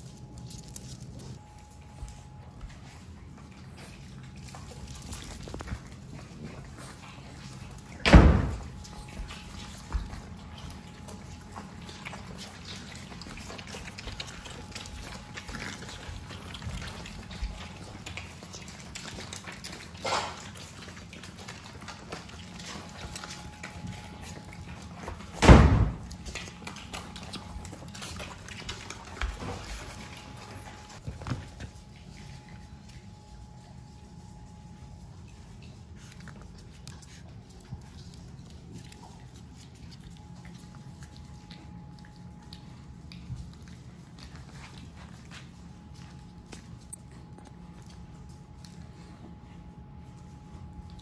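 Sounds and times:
puppies suckling and snuffling: 0.0 - 51.0.

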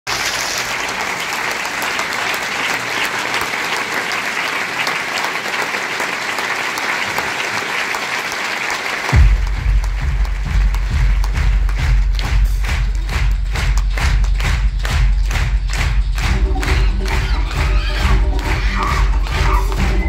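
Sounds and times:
large audience applauding: 0.1 - 20.0
music with heavy bass beat: 9.2 - 20.0.

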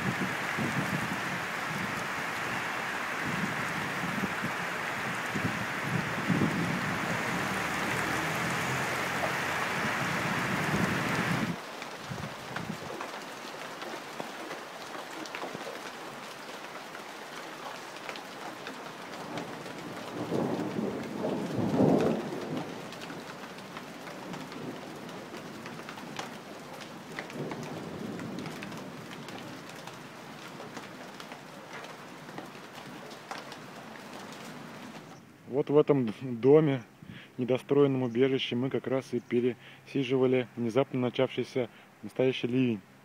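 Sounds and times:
thunder rumbling: 0.0 - 11.6, 19.3 - 23.2
heavy rain on wooden slats: 0.0 - 37.6, 38.7 - 40.6.

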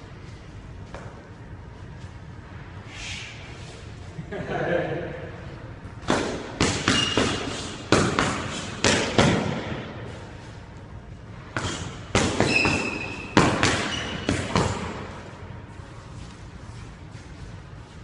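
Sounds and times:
boxing glove punches smacking: 6.0 - 9.7
sneakers squeaking on hardwood: 6.8 - 7.4, 11.6 - 15.0.

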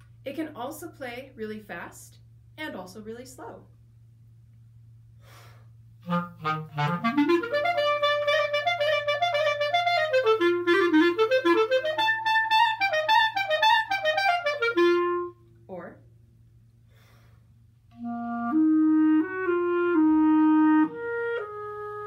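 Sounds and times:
solo clarinet melody: 6.0 - 15.5, 17.9 - 22.0.

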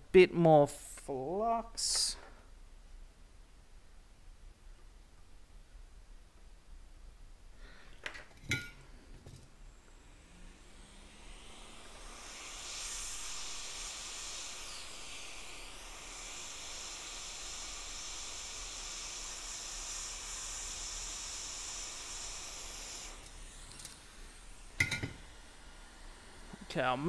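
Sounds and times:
hot air blower hissing: 7.5 - 27.0.

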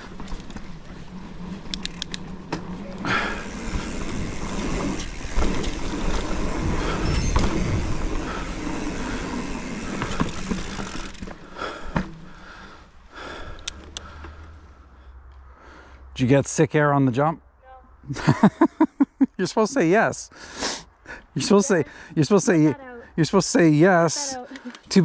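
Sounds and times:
bike rattles and knocks: 0.0 - 12.4
bike tyre and wind rush: 0.0 - 14.8
sharp clicks: 1.7 - 2.2, 13.5 - 14.1.

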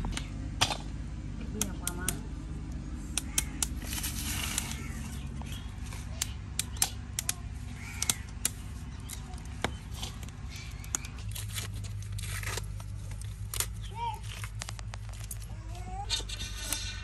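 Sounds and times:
steady low hum: 0.0 - 17.0
sharp clicks and taps: 1.4 - 3.8, 5.4 - 7.4, 8.0 - 11.2.

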